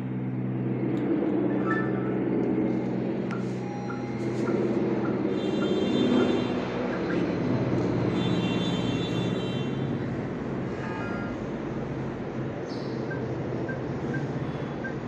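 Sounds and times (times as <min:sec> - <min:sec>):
low engine drone: 0:00.0 - 0:15.0
short electronic beeps: 0:01.6 - 0:07.2.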